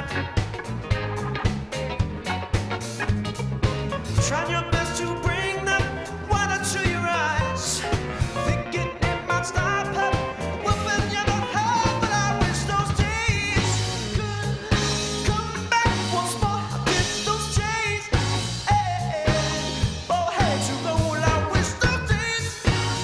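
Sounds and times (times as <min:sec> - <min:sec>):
drums on a steady beat: 0:00.0 - 0:23.0
electric guitar: 0:00.0 - 0:23.0
keyboards: 0:00.0 - 0:23.0
person singing: 0:04.1 - 0:23.0.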